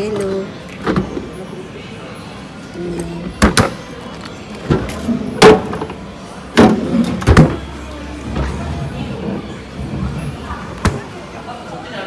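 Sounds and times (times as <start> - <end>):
refrigerator drawers clunking: 4.6 - 11.1.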